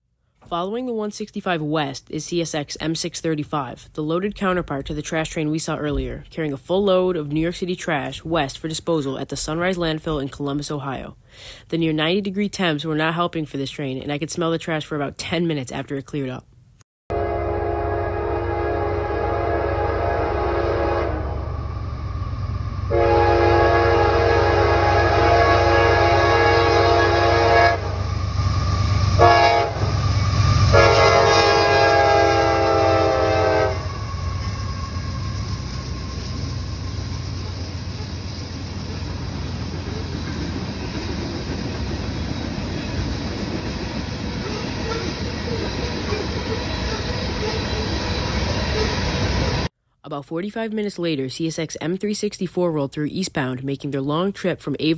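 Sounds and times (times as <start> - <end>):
locomotive air horn blasts: 17.1 - 21.6, 22.9 - 28.4, 29.1 - 36.2.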